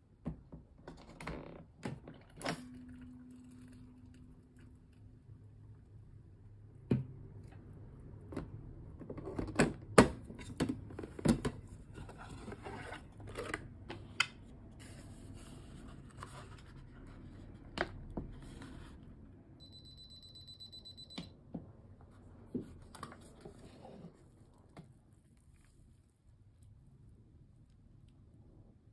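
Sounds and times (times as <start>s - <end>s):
steady electronic beep: 19.6s - 21.3s.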